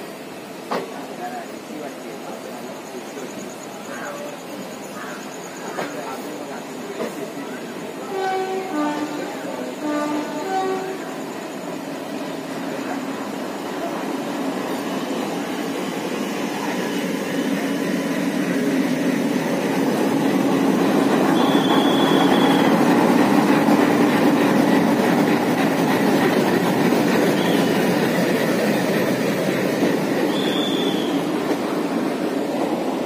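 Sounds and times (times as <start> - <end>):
train wheels rumbling on rails: 0.0 - 33.0
high wheel squeals: 21.0 - 23.0, 30.2 - 31.3.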